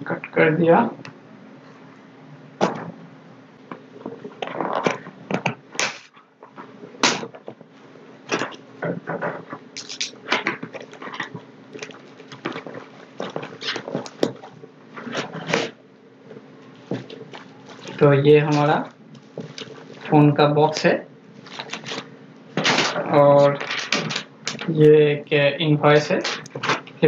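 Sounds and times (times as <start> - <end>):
bubble wrap rustling: 3.8 - 15.8, 16.4 - 20.2, 21.3 - 24.7
cardboard flaps scraping and crackling: 10.2 - 15.8, 16.7 - 20.2, 21.4 - 24.7, 26.0 - 27.0.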